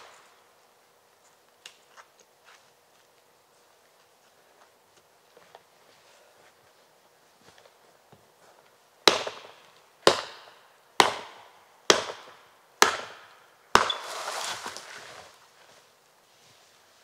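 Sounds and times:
hatchet chopping tree trunk: 0:09.0 - 0:14.8
tree trunk crashing down: 0:13.7 - 0:15.4.

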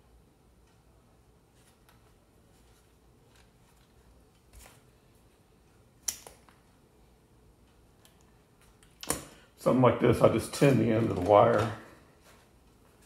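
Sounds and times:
quiet handling of wire: 0:10.2 - 0:13.0.

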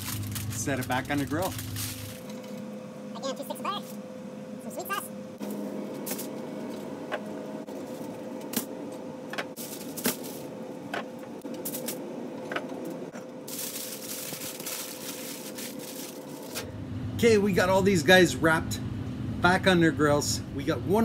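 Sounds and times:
aluminium foil crinkling: 0:00.0 - 0:02.6, 0:09.6 - 0:10.5, 0:13.4 - 0:16.7.

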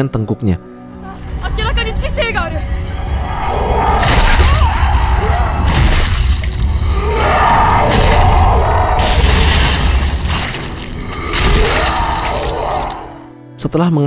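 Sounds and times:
orchestral music: 0:00.0 - 0:14.0
heavy crashes and smashing impacts: 0:07.8 - 0:12.5.

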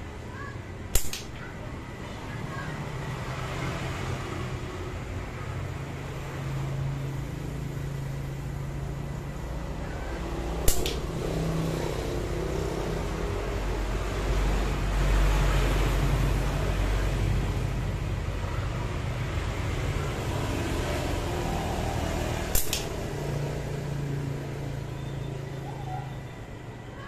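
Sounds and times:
slingshot crack: 0:00.9 - 0:01.6, 0:10.5 - 0:11.6, 0:22.4 - 0:23.4.

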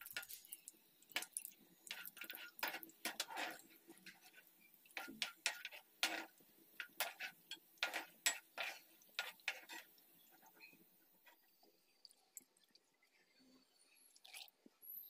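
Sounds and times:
utensils clinking against pot: 0:00.0 - 0:04.4, 0:05.0 - 0:10.8.

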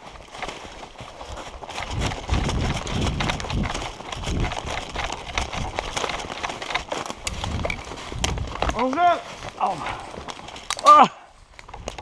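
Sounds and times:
running footsteps on dry leaves: 0:00.0 - 0:12.0.

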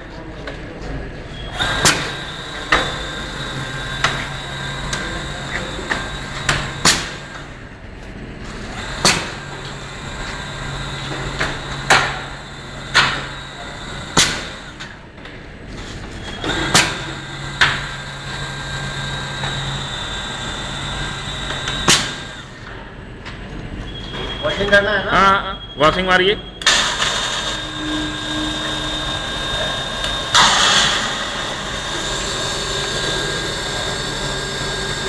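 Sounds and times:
low motor hum: 0:00.0 - 0:24.3, 0:26.6 - 0:35.0
sharp metallic clanks: 0:26.6 - 0:35.0.

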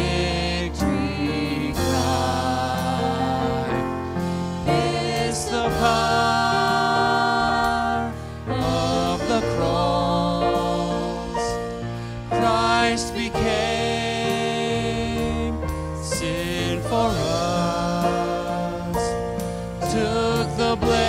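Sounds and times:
instrumental accompaniment: 0:00.0 - 0:21.0.

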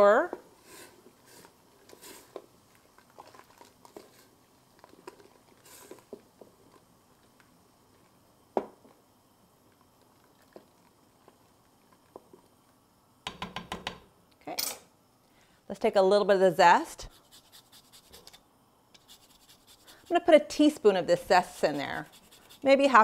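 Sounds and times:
taps and clicks of kitchen utensils: 0:13.2 - 0:14.0.

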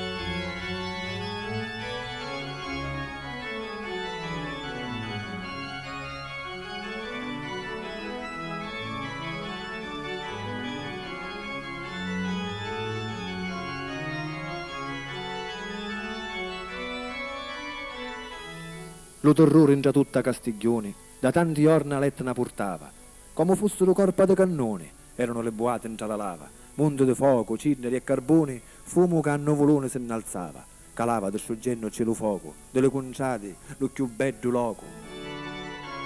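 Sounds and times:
organ playing held chords: 0:00.0 - 0:23.9, 0:31.8 - 0:36.0.

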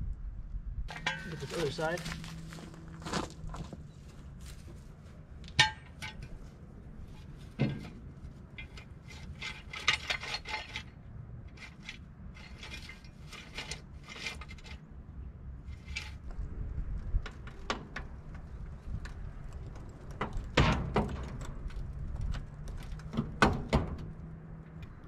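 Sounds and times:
metal clank: 0:00.9 - 0:01.9, 0:05.6 - 0:06.4, 0:07.5 - 0:10.9
ratchet metallic clicks and scrapes: 0:07.1 - 0:14.8, 0:15.7 - 0:16.2.

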